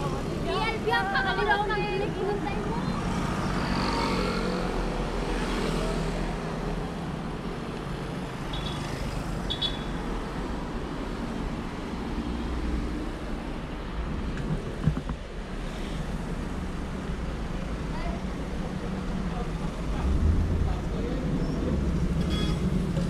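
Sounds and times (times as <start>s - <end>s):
cars driving past: 2.0s - 6.8s, 18.4s - 23.0s.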